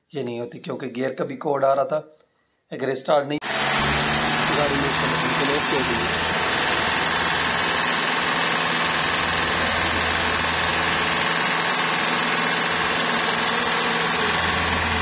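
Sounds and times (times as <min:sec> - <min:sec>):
car engine idling: 0:03.4 - 0:15.0.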